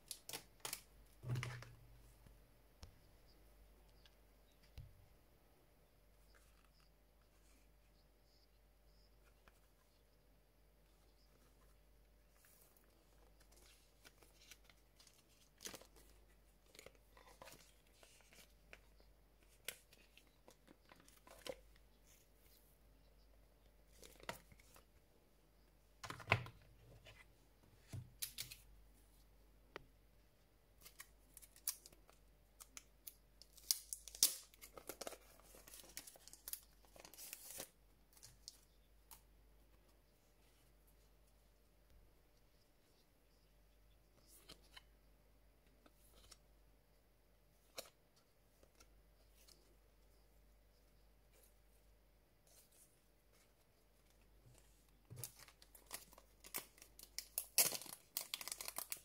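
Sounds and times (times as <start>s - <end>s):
cards and cardboard rustling: 11.1s - 22.7s, 33.4s - 40.7s, 51.3s - 59.0s
plastic sleeve crinkling: 54.5s - 59.0s.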